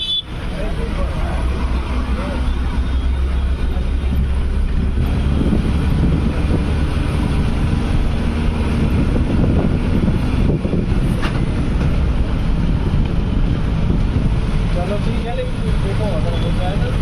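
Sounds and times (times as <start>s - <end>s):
bus engine and road rumble: 0.0s - 17.0s
wind rushing through window: 3.5s - 16.2s.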